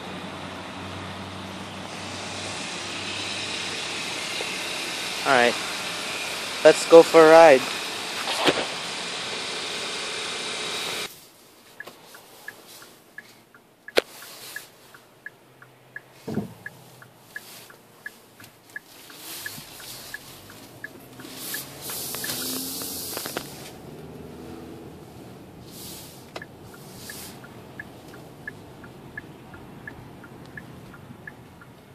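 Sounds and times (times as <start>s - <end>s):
moving car noise: 0.0s - 31.9s
steady outdoor noise: 0.0s - 31.9s
turn signal ticking: 11.0s - 31.9s
thump: 16.2s - 16.6s.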